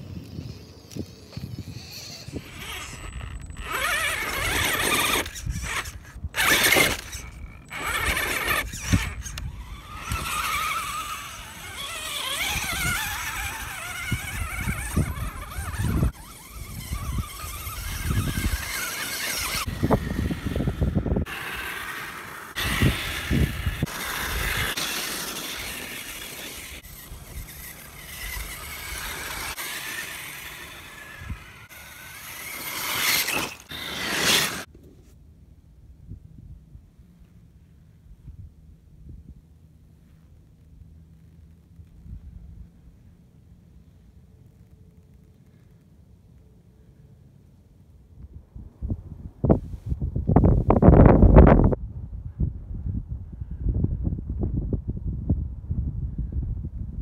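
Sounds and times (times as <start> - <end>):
electric motor whining: 0.2 - 34.7
tyres scraping over rock: 1.4 - 34.7.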